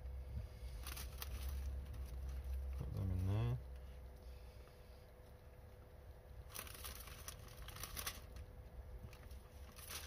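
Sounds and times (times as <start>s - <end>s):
faint steady hum: 0.0s - 10.0s
plastic packaging crinkling: 0.8s - 2.6s, 6.4s - 10.0s.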